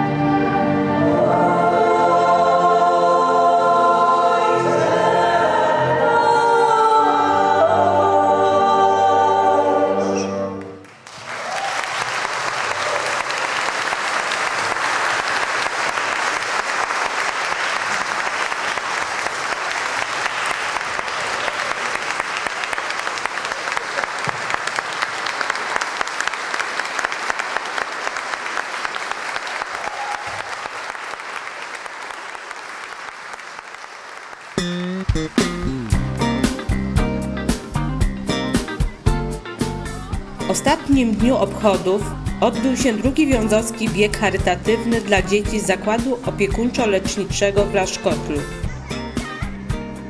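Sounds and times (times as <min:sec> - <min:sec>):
choir with string orchestra: 0:00.0 - 0:10.8
audience applauding: 0:10.6 - 0:36.1.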